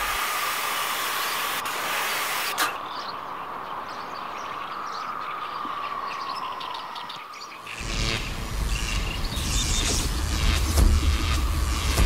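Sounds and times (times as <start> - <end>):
loud noisy whoosh: 7.8 - 12.0.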